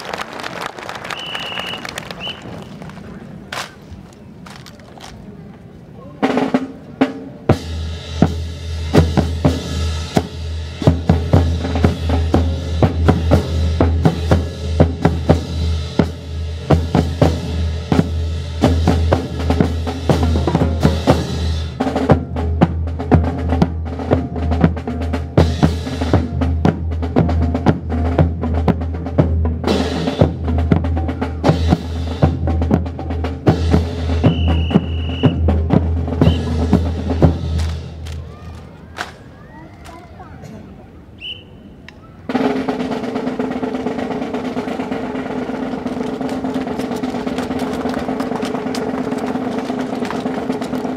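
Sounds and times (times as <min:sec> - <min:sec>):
snare and bass drum cadence: 0:06.2 - 0:38.2.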